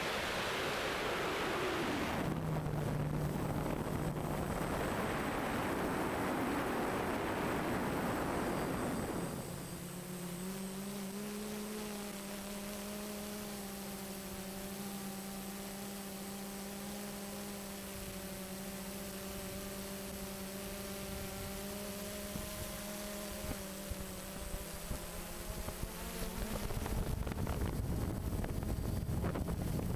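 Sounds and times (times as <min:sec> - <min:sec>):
quadcopter motors humming: 0:00.0 - 0:29.9
wind buffeting microphone: 0:00.8 - 0:09.6, 0:20.9 - 0:29.9.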